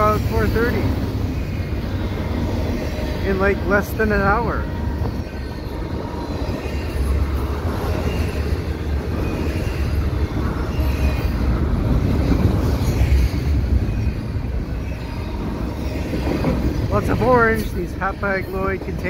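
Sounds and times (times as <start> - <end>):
freight train wheels rumbling on rails: 0.0 - 19.0.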